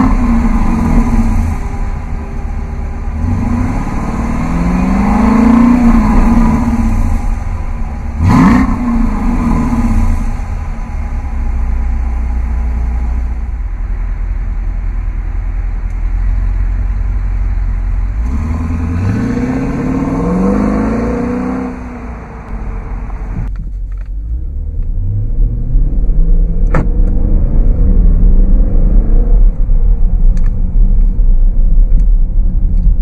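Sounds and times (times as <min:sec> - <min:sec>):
engine revving: 0:00.0 - 0:13.5, 0:16.4 - 0:23.5
engine exhaust idling: 0:00.0 - 0:19.0.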